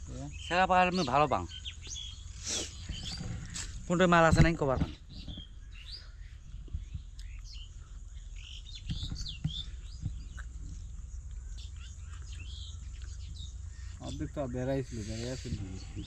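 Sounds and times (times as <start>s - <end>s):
birds chirping: 0.0s - 16.0s
steady low rumble: 1.4s - 16.0s.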